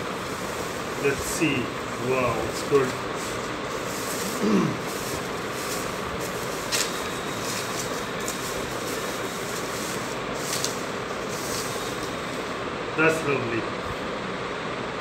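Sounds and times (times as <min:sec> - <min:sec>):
background hiss: 0:00.0 - 0:13.6
plastic sleeve rustling and crinkling: 0:02.0 - 0:12.6.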